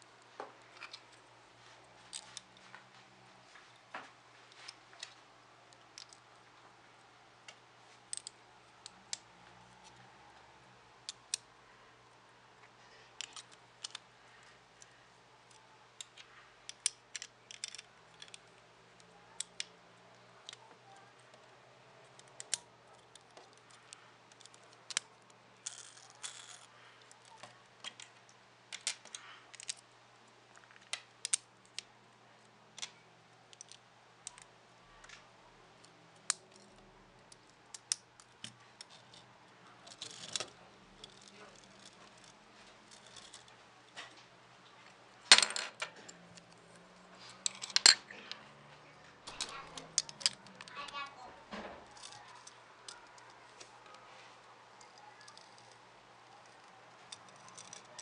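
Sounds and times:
plastic bricks clicking and clattering: 13.2 - 14.0, 15.5 - 18.5, 49.3 - 50.8.

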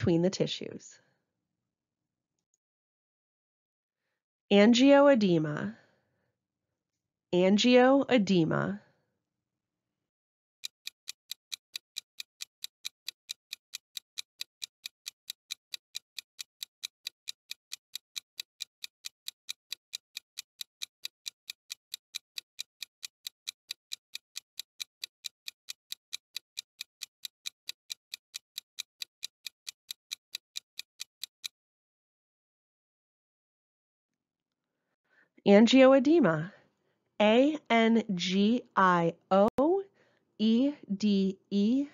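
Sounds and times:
fast clock ticking: 10.6 - 31.6.

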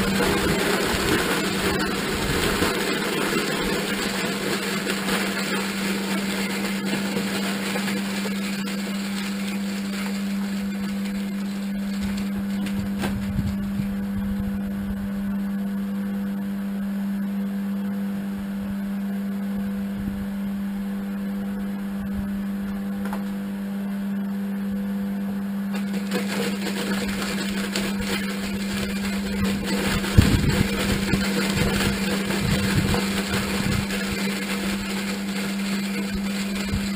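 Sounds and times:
electric motor humming: 0.0 - 15.8, 25.8 - 36.9.

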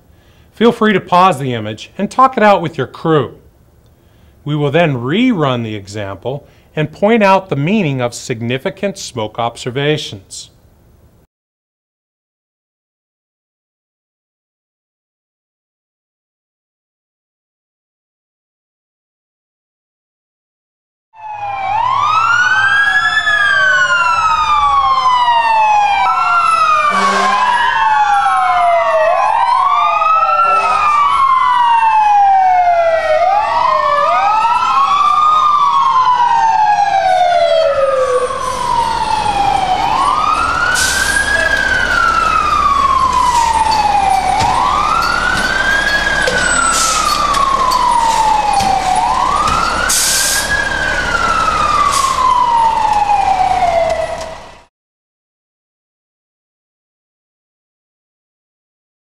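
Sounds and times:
fire engine sirens wailing: 21.2 - 54.7.

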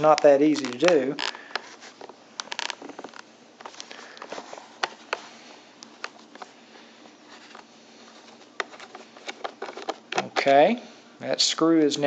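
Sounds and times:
handling noise: 0.0 - 10.7.

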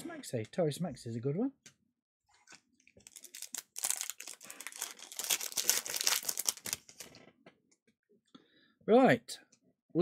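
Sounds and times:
wrapper crinkling: 2.4 - 7.2.

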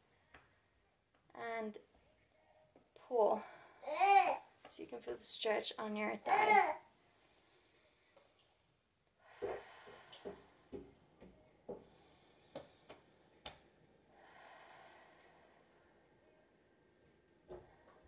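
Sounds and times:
long soft exhale: 9.2 - 10.5, 14.1 - 15.8.

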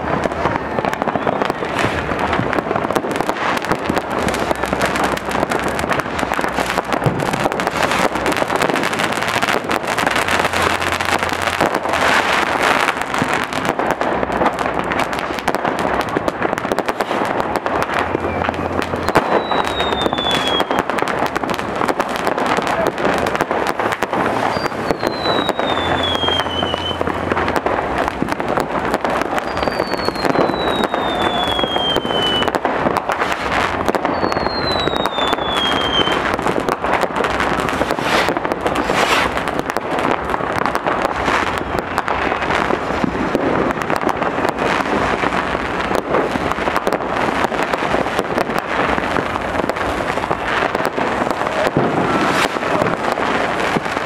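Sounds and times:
firecrackers crackling bangs: 0.0 - 54.0
falling firework whistles: 0.8 - 2.1, 3.2 - 5.2, 16.8 - 17.3, 18.1 - 21.1, 23.8 - 27.1, 29.2 - 36.4, 37.3 - 39.5, 50.3 - 54.0.

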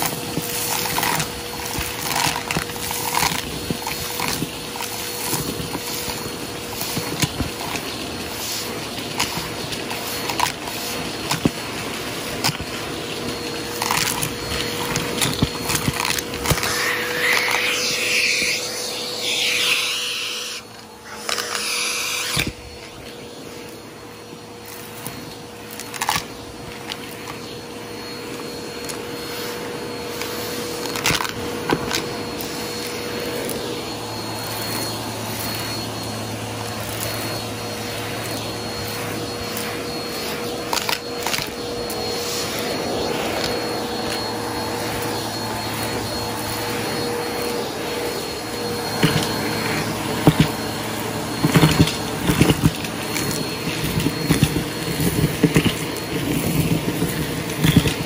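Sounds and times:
debris clicking in vacuum tool: 0.0 - 23.8, 24.6 - 58.0
vacuum cleaner whining: 0.0 - 58.0.

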